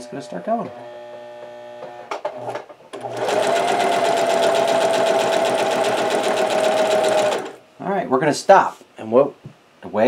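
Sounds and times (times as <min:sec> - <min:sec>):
sewing machine motor whine: 0:00.0 - 0:07.6.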